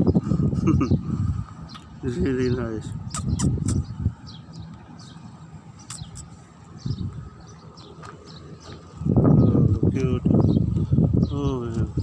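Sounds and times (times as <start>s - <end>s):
small birds chirping: 0.0s - 12.0s
footsteps on gravel: 6.6s - 9.1s.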